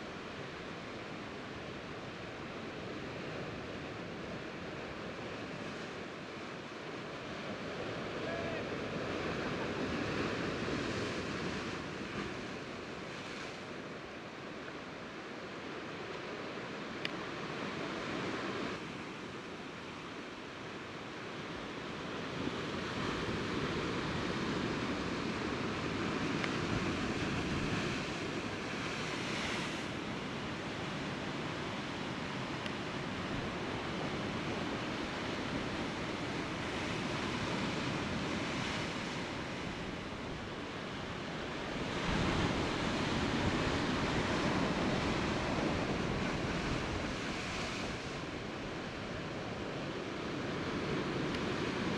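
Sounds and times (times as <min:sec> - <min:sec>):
wind on microphone: 0:41.6 - 0:49.8.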